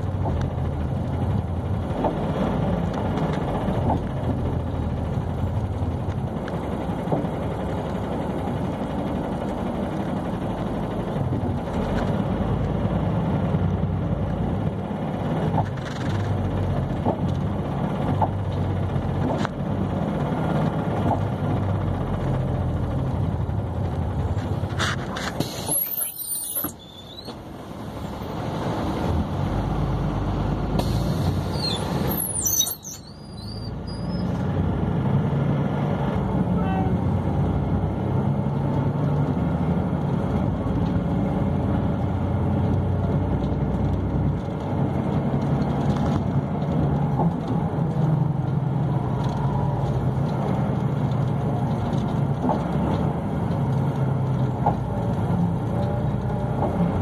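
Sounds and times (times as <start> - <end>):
vehicle engine and road hum: 0.0 - 57.0
high squeals: 25.4 - 27.4, 31.4 - 34.4.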